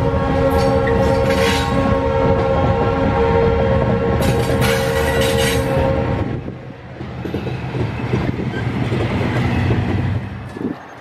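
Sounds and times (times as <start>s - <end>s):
train horn blast: 0.0s - 6.6s
locomotive engine drone: 0.0s - 11.0s
train wheels clattering on rails: 0.4s - 2.0s, 4.1s - 6.0s, 6.9s - 11.0s.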